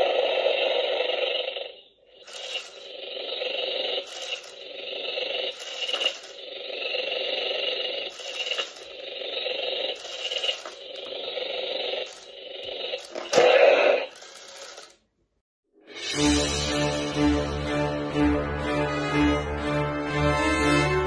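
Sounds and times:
toy snake rattling buzz: 0.0 - 15.1.

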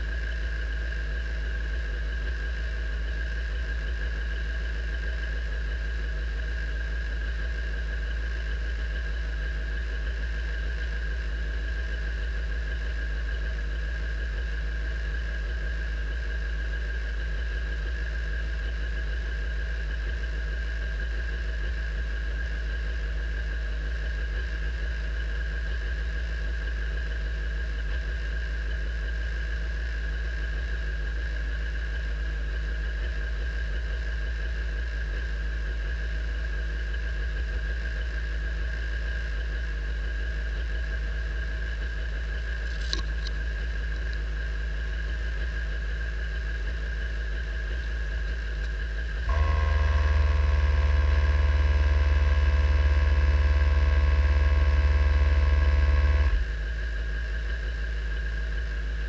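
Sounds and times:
high-pitched whine: 46.6 - 59.0
car engine idling: 49.3 - 56.6.

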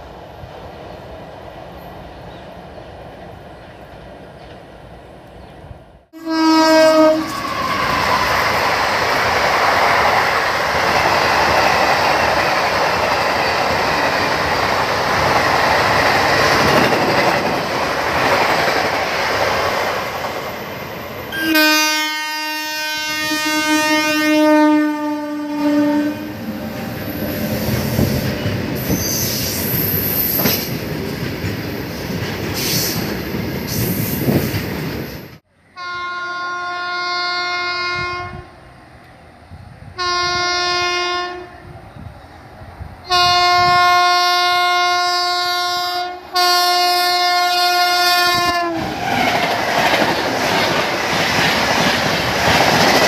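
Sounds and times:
train passing at high speed: 0.0 - 53.0
two-tone train horn: 6.2 - 8.3, 21.3 - 28.1, 35.7 - 38.6, 39.9 - 41.7, 43.0 - 48.8.

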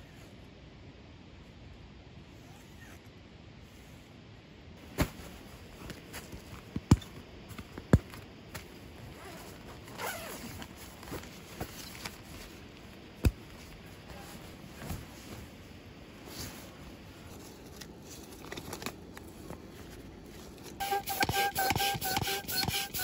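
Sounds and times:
fabric rustling: 4.8 - 21.5
zipper running: 6.0 - 12.5.

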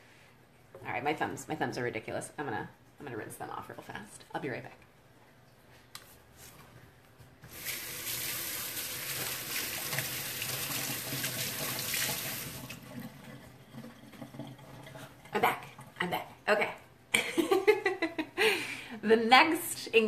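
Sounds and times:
kitchen tap running: 7.4 - 16.0.

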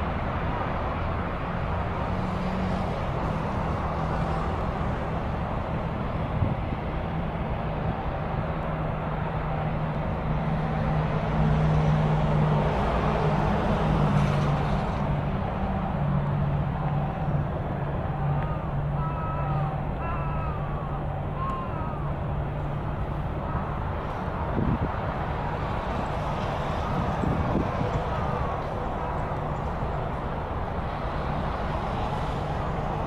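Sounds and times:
low engine hum: 0.0 - 33.0
outdoor background noise: 0.0 - 33.0.

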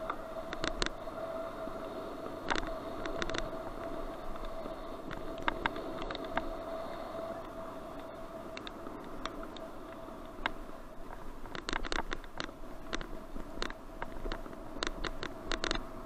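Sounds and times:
faint steady whine: 0.0 - 16.0.

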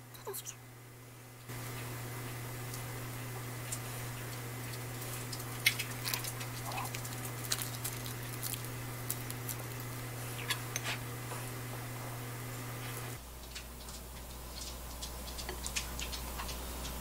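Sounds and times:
low electrical hum: 0.0 - 17.0
fingers crinkling dried seaweed: 4.7 - 10.7.

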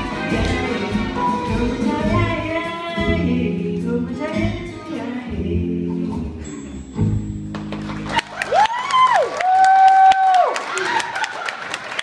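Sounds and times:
person singing: 0.0 - 6.8
instrumental accompaniment: 0.0 - 8.2.

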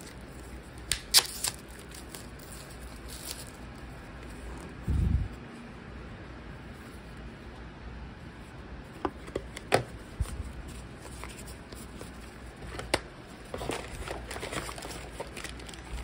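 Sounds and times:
cardboard scraping and rustling: 9.2 - 16.0.

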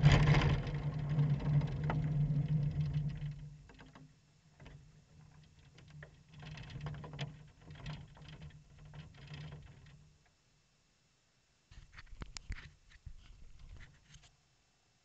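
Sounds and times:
knocks and clunks on kart: 0.0 - 10.2.

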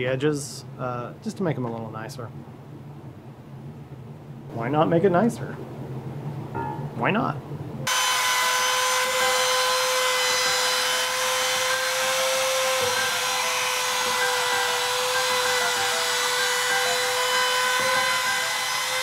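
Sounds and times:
router motor whine cutting wood: 7.9 - 19.0.

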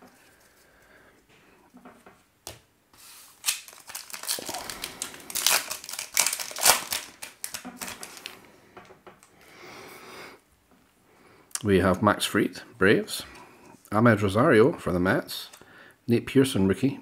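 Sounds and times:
cards being handled: 2.5 - 8.4
wrapper tearing and crinkling: 3.3 - 8.4.

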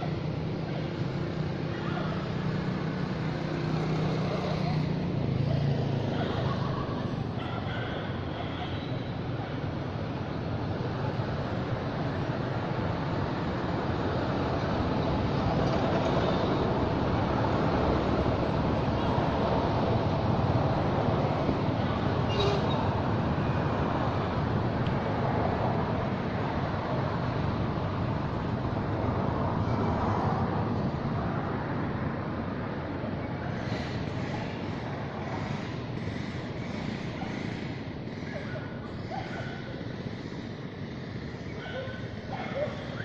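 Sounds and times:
rushing outdoor background noise: 0.0 - 43.0.

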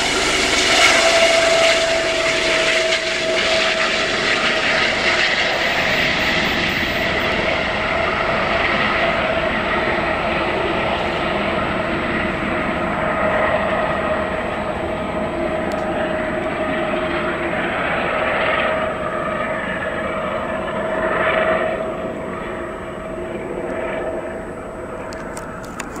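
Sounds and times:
helicopter engine and rotor whine: 0.0 - 26.0.

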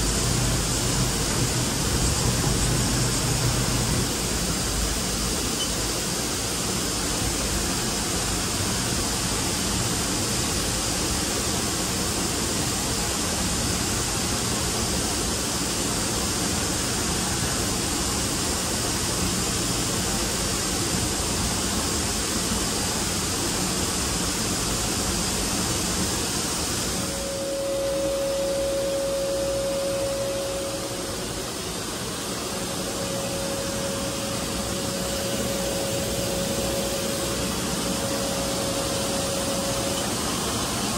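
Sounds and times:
machining center rushing noise: 0.0 - 5.6, 24.1 - 40.9
single-pitched machine whine: 0.0 - 40.9.

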